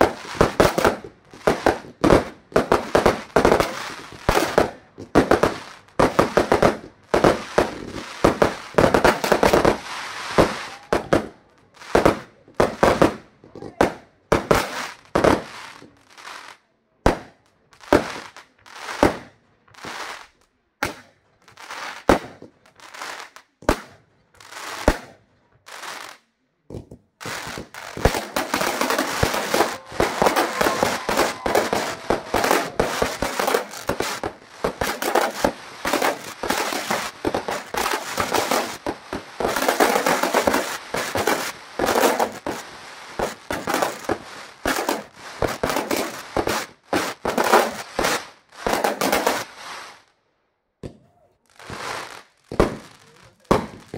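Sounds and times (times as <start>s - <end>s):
rapid firework pops and crackling: 0.0s - 50.2s, 50.8s - 53.9s
firework shells bursting: 26.7s - 42.6s.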